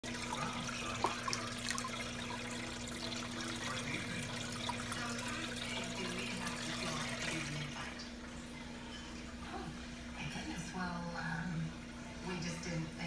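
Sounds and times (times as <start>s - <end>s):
water trickling and splashing: 0.0s - 10.2s.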